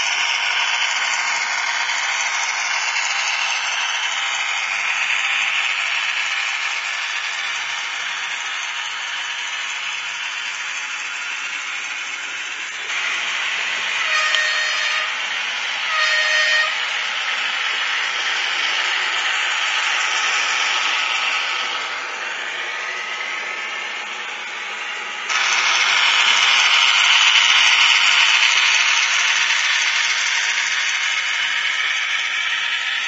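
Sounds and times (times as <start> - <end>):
model train hissing running noise: 0.0 - 33.0
model train horn blasts: 13.9 - 15.2, 15.8 - 16.9.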